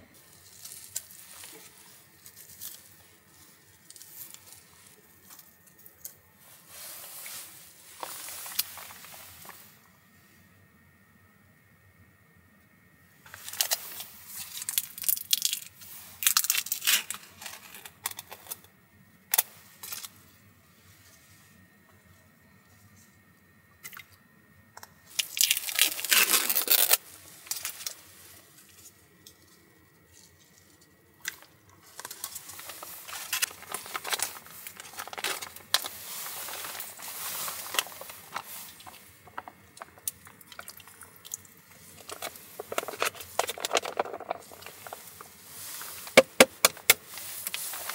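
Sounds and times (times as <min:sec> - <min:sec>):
plastic packaging crinkling and tearing: 0:06.8 - 0:09.6, 0:13.3 - 0:18.6, 0:25.1 - 0:28.8, 0:31.2 - 0:47.9.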